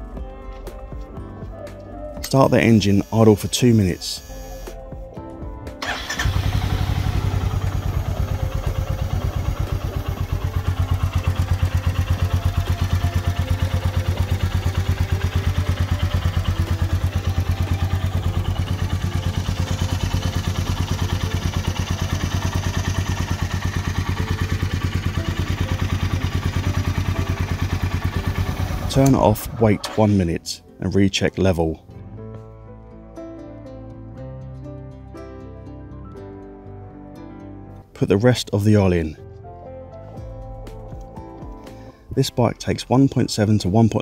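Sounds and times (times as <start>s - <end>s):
motorcycle engine idling: 5.8s - 29.8s.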